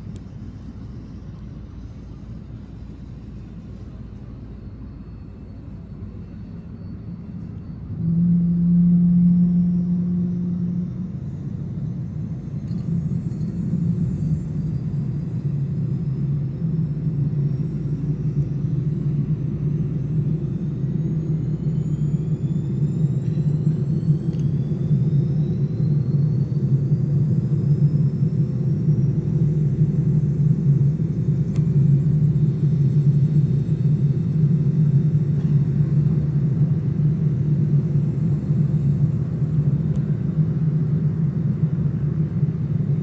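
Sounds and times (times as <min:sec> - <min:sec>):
turboprop aircraft droning: 0:00.0 - 0:43.0.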